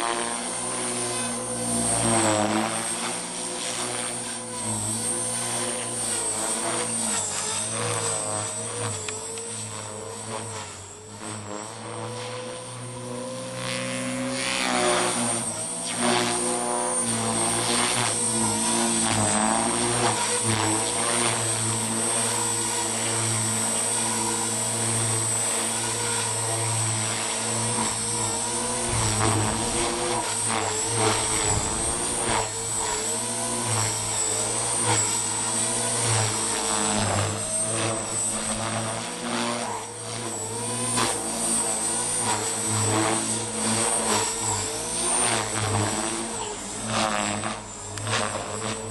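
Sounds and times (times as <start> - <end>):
rc helicopter rotor whine: 0.0 - 48.9.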